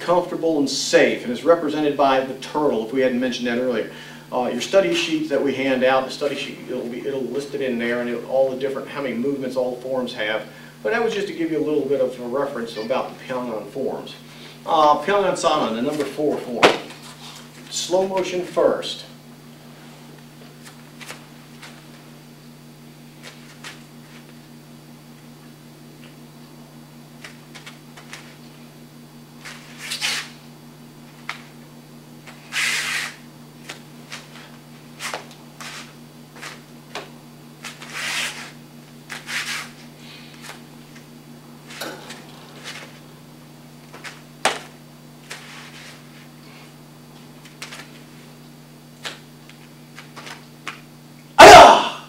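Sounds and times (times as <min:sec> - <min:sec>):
bare feet scuffing on mats: 0:15.9 - 0:17.7, 0:19.9 - 0:22.1, 0:23.1 - 0:24.4, 0:32.3 - 0:43.2, 0:43.8 - 0:48.4.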